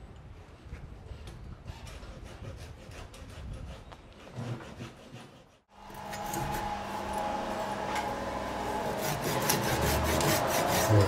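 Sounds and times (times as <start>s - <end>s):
wood scraping: 1.6s - 11.0s
power tool running: 5.7s - 11.0s.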